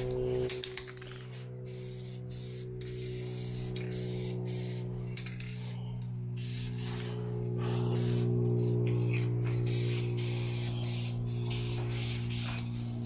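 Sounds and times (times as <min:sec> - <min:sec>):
steady low hum: 0:00.0 - 0:13.0
spray gun hissing: 0:01.7 - 0:05.8, 0:06.4 - 0:07.2, 0:07.9 - 0:08.3, 0:09.7 - 0:12.7.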